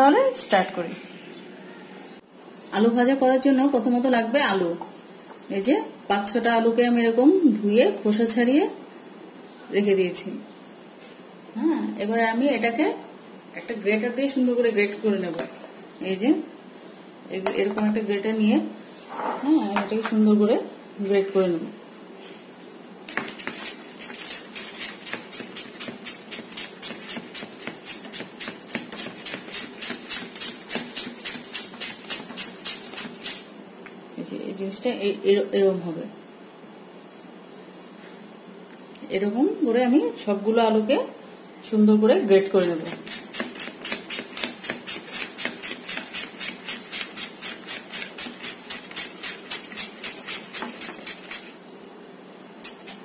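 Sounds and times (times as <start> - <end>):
potato grating strokes: 23.1 - 33.5, 42.6 - 51.6, 52.6 - 53.0.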